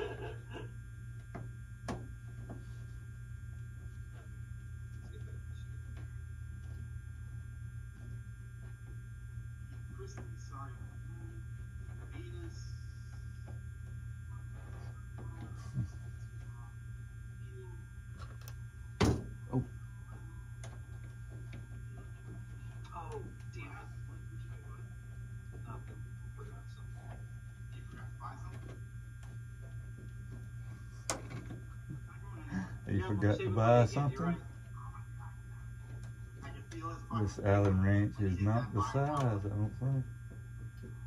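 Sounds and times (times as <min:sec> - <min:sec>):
low electrical hum: 0:00.0 - 0:41.0.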